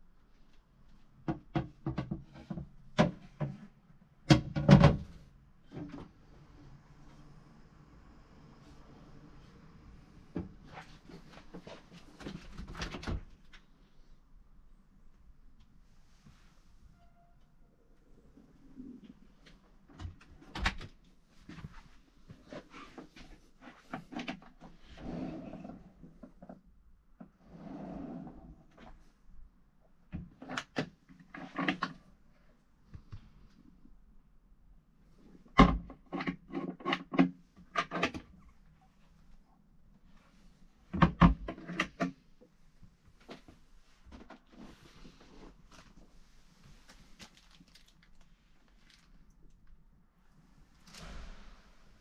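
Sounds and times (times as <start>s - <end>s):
drawer sliding shut: 50.8s - 52.0s.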